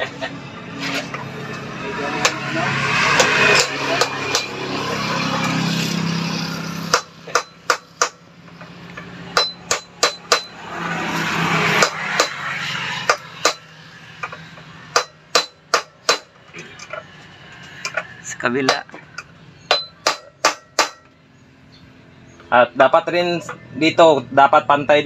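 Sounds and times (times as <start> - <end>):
low rushing drone: 0.0 - 7.6, 8.2 - 15.3
hammer tapping on steel: 6.9 - 8.2, 9.3 - 10.6, 13.1 - 16.4, 17.8 - 21.2.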